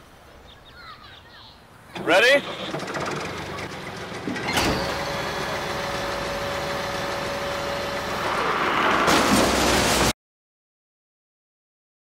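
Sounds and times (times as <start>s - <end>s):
wheel loader engine running: 1.9s - 10.1s.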